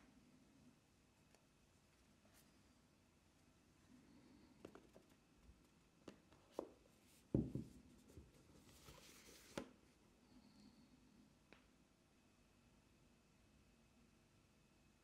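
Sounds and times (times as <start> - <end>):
soft thump: 7.3 - 7.8
paper sliding: 8.6 - 9.7.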